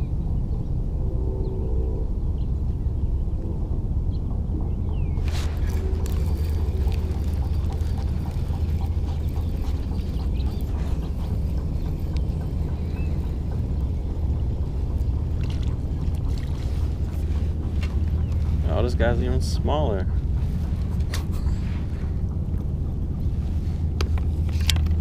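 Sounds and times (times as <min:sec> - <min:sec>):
steady low rumble: 0:00.0 - 0:25.0
water splashing around kayak: 0:05.2 - 0:18.8
fishing reel clicking: 0:05.5 - 0:14.0.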